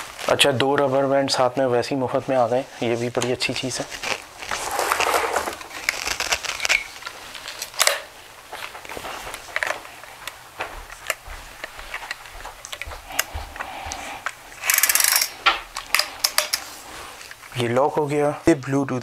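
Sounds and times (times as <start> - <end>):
plastic parts clicking and knocking: 4.9 - 8.1, 14.2 - 16.7.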